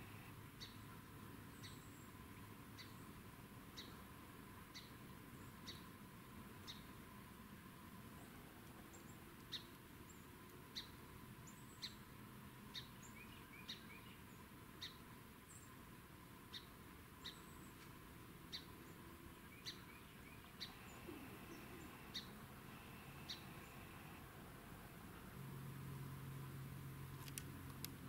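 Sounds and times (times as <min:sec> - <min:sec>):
background hiss: 0:00.0 - 0:28.0
small bird chipping: 0:08.9 - 0:12.0, 0:18.5 - 0:24.2.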